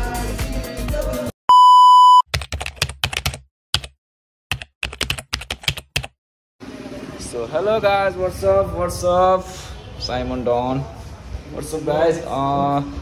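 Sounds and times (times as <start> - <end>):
music: 0.0 - 1.3
electronic beep: 1.5 - 2.2.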